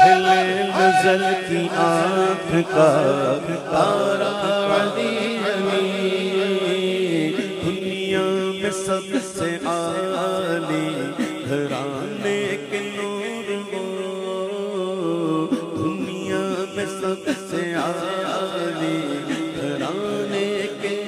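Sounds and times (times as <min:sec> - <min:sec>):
melismatic solo singing: 0:00.0 - 0:03.5
chanted drone of backing voices: 0:00.0 - 0:21.0.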